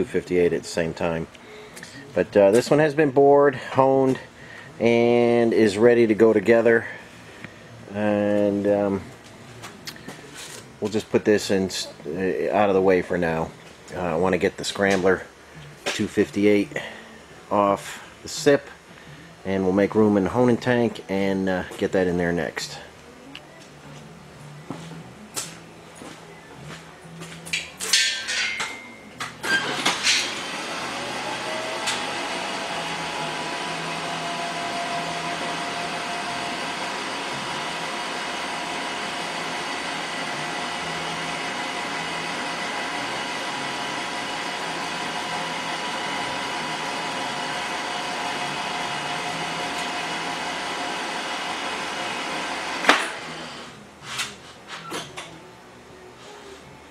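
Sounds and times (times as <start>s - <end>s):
metal tooling clanking: 27.9s - 29.0s
machine motor whine: 29.4s - 53.8s.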